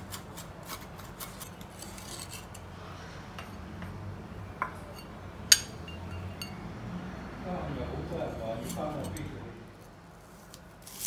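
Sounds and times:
kitchen utensils scraping: 0:00.0 - 0:02.8, 0:08.3 - 0:09.4.

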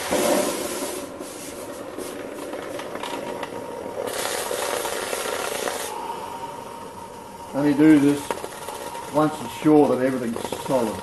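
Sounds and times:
hot metal hissing in water: 0:04.0 - 0:11.0.

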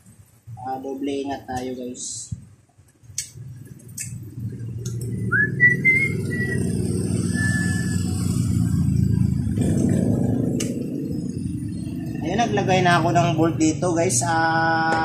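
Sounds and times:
low rumble: 0:03.5 - 0:14.4
short whistled notes: 0:05.3 - 0:06.6, 0:07.2 - 0:08.1.

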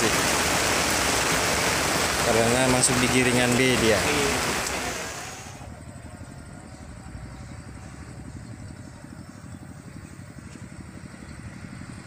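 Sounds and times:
small engine idling: 0:03.6 - 0:12.0.

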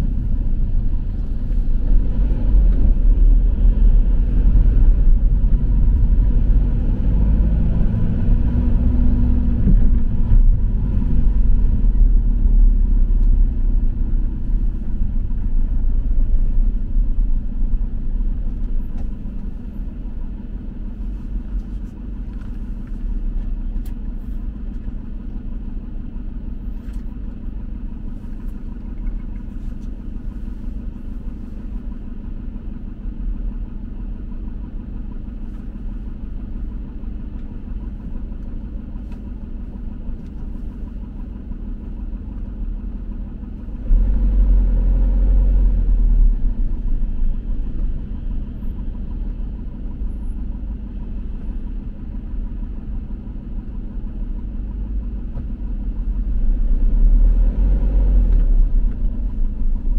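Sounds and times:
vehicle driving rumble: 0:00.0 - 0:59.9.

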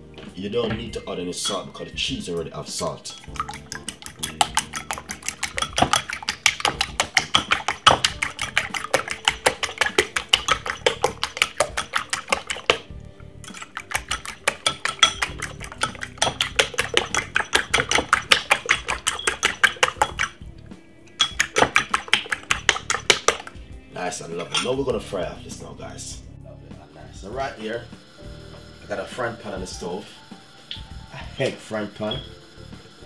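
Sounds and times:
fork clinking against a bowl: 0:01.4 - 0:01.9, 0:03.1 - 0:20.3, 0:21.1 - 0:23.5, 0:24.5 - 0:24.8.

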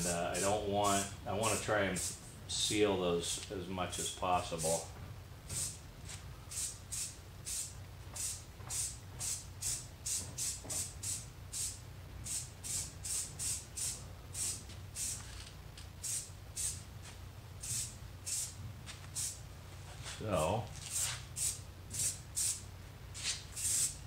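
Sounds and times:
steady low hum: 0:00.0 - 0:24.0
aerosol can hissing in spurts: 0:23.2 - 0:24.0.

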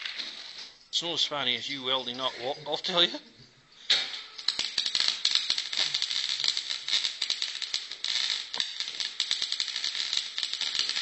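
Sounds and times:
arc welder crackling: 0:03.9 - 0:11.0.

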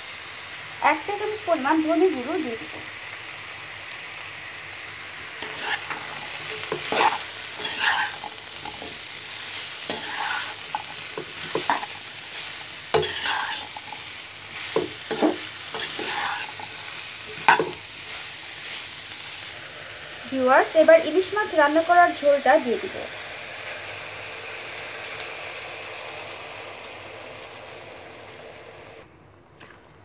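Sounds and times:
food sizzling in hot oil: 0:00.0 - 0:29.0
spoon scraping a pan: 0:05.4 - 0:19.0.

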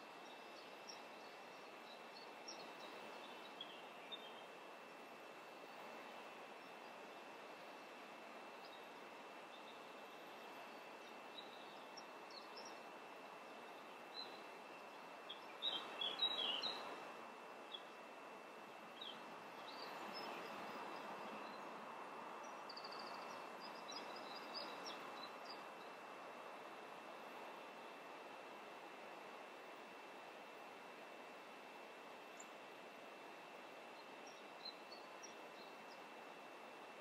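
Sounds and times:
small birds chirping: 0:00.0 - 0:26.1, 0:33.4 - 0:36.8
steady hiss: 0:00.0 - 0:37.0.

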